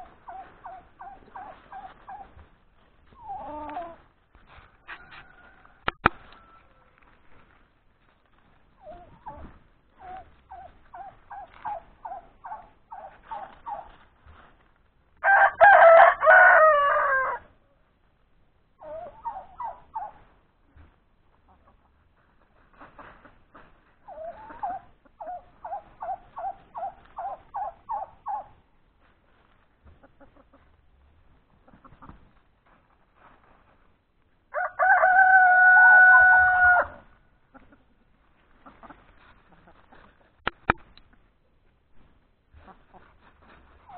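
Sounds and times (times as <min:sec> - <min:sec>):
chickens clucking: 0:00.0 - 0:14.8, 0:18.1 - 0:33.9, 0:34.8 - 0:43.9
rooster crowing: 0:04.8 - 0:07.0, 0:15.2 - 0:17.5, 0:34.5 - 0:37.0.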